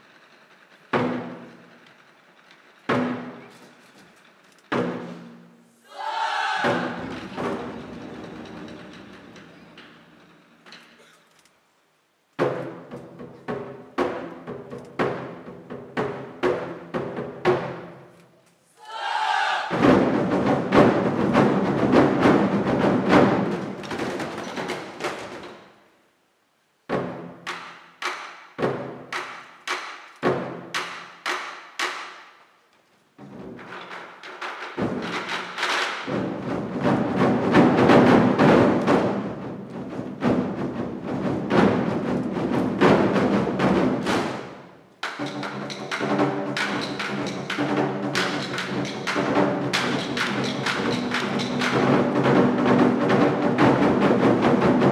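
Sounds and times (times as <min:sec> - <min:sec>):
large drums rolling: 0:00.0 - 0:11.1, 0:12.3 - 0:18.1, 0:19.0 - 0:26.0, 0:33.2 - 0:54.9
loud unison drum strikes: 0:06.3 - 0:08.7, 0:19.4 - 0:25.3, 0:36.0 - 0:54.9.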